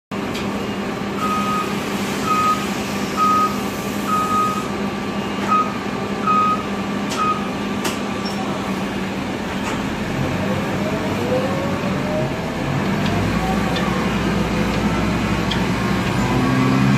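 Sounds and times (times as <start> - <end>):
diesel bus idling: 0.1 - 16.9
engine rising whine: 0.6 - 16.9
electronic warning beeper: 0.7 - 2.6, 3.2 - 4.7, 5.4 - 7.5.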